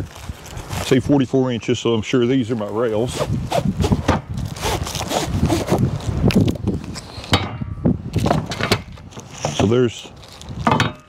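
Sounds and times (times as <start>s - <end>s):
packaging rustling: 3.5s - 7.0s, 9.1s - 10.6s.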